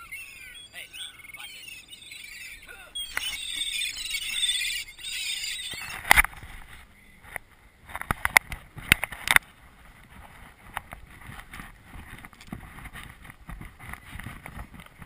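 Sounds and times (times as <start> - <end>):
gulls calling: 0.0 - 6.3.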